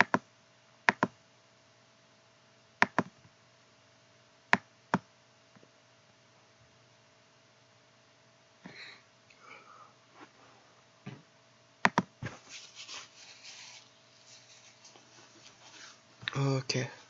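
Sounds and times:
computer mouse clicking: 0.0 - 0.2, 0.9 - 1.1, 2.8 - 3.1, 11.8 - 12.1
soft hissy noises: 12.2 - 17.0.

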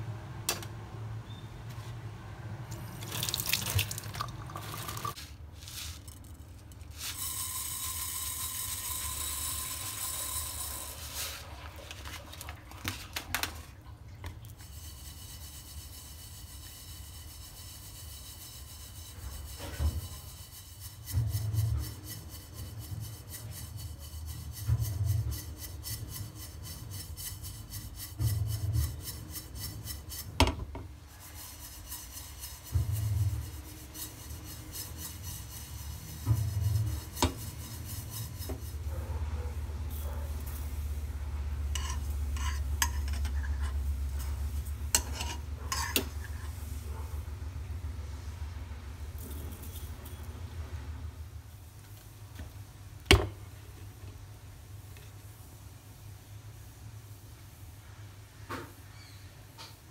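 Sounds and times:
seeds swishing in shaken pan: 3.1 - 13.2, 31.0 - 41.1.

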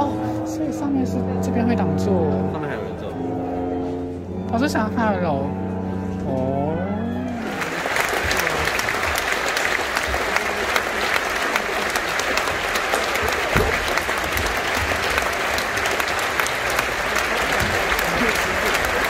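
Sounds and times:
audience applauding: 7.3 - 19.0.

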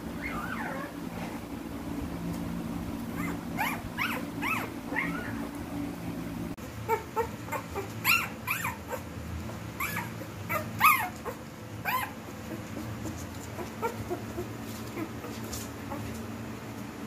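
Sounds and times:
puppies whimpering: 0.0 - 1.0, 3.1 - 5.6, 6.8 - 9.1, 9.8 - 16.2.

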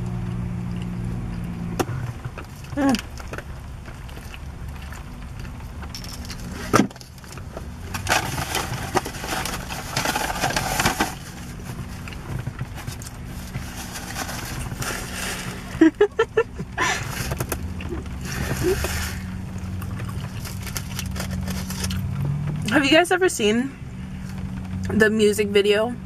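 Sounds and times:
person chewing food: 0.0 - 1.7, 2.4 - 7.8, 11.5 - 15.7, 17.0 - 22.4
steady low hum: 0.0 - 26.0
foil wrapper rustling: 6.0 - 15.9, 17.0 - 22.0.

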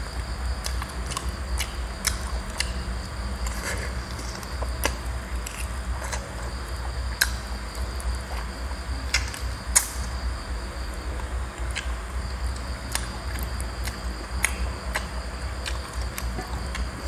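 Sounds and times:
person chewing and lip-smacking: 0.6 - 2.8, 12.8 - 17.0.

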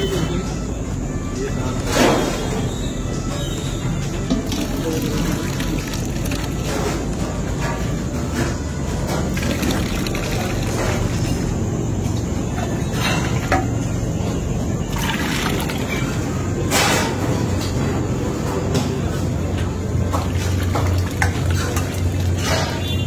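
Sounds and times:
metal vessels knocking: 4.0 - 11.8, 19.8 - 23.0
liquid sloshing and splashing: 4.2 - 7.8, 9.1 - 11.6, 14.8 - 16.2, 20.2 - 23.0.

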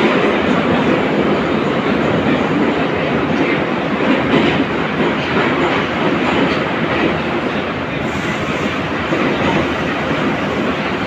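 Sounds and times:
metro wheels rumbling on rails: 0.0 - 11.0.

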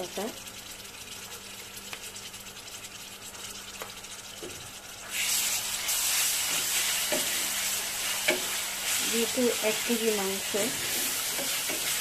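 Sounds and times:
onions sizzling in oil: 0.0 - 12.0
spatula scraping pan: 5.1 - 12.0.

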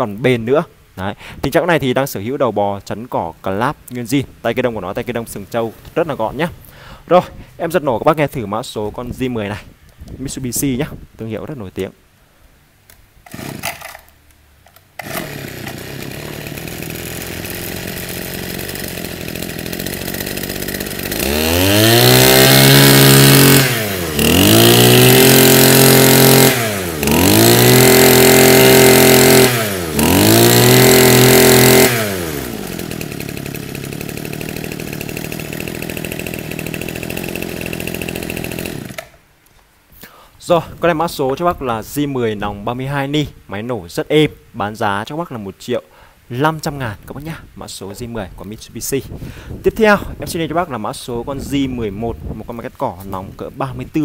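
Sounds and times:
brushcutter engine revving and idling: 13.3 - 14.1, 15.0 - 39.2.

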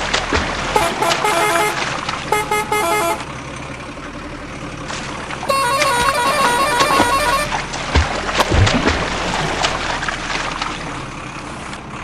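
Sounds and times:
water sloshing: 0.0 - 3.4, 4.8 - 11.9
horn-like tones: 0.7 - 3.3, 5.5 - 7.6.

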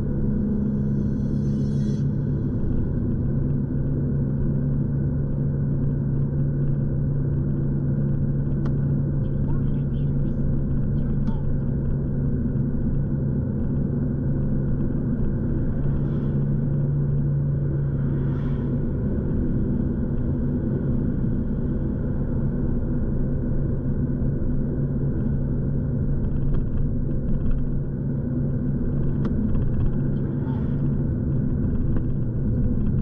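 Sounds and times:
car engine and tyre rumble: 0.0 - 33.0
constant low hum: 0.0 - 33.0.

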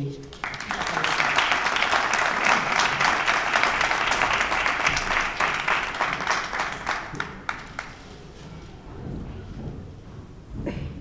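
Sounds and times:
audience applauding: 0.2 - 8.4.

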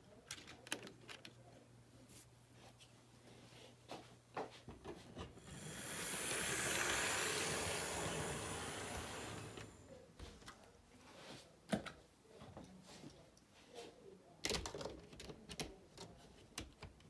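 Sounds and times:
model train passing: 5.4 - 9.9.

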